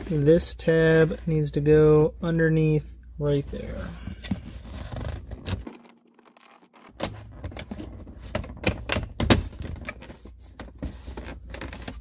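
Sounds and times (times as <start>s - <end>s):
plastic trim scraping: 4.2s - 9.0s.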